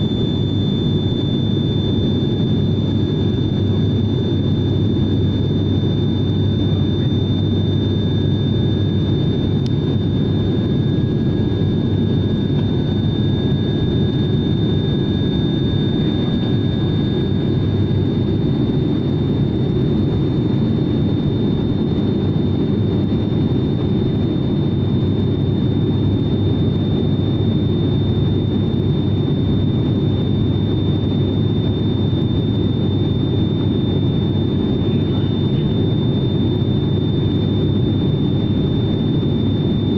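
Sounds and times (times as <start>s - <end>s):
thin high whine: 0.0s - 19.5s
engine and propeller drone: 0.0s - 39.9s.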